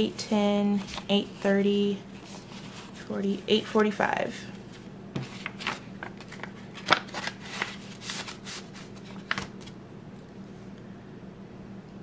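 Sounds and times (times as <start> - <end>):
banknotes flicking and rustling: 4.7 - 9.7.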